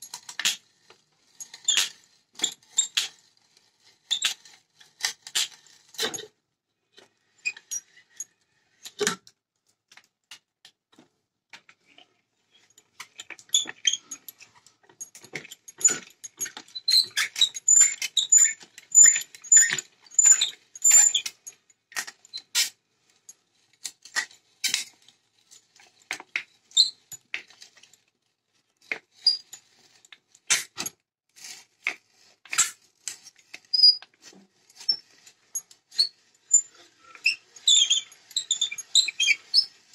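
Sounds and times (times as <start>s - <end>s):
short high squeaks: 35.9s - 39.7s.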